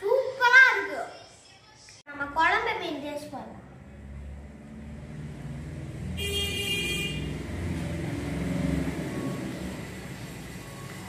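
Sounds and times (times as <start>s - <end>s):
motor vehicle running: 3.6s - 11.0s
short vehicle horn: 6.2s - 7.5s.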